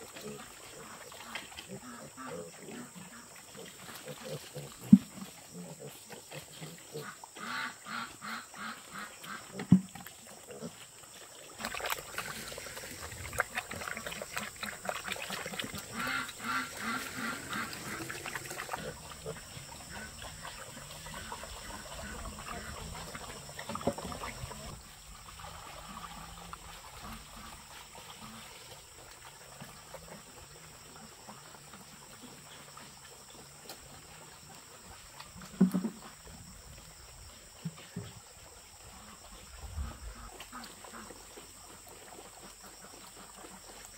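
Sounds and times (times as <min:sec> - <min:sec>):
piglets eating wet feed: 0:00.0 - 0:43.9
piglets grunting: 0:15.8 - 0:20.2.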